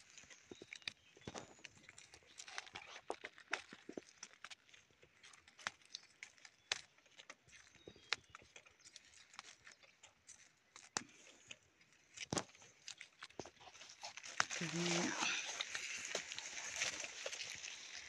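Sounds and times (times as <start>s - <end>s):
footsteps on dry leaves: 11.1s - 18.0s.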